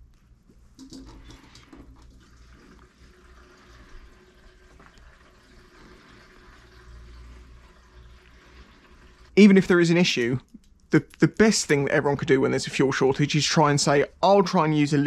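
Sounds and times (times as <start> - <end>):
liquid trickling into plastic can: 0.8 - 9.3.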